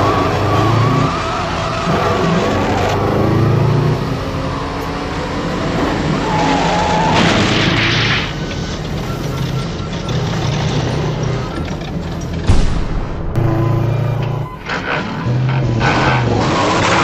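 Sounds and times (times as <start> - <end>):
cartoon car engines: 0.0 - 12.5, 13.4 - 17.0
loud car crash: 6.2 - 9.0, 12.3 - 17.0.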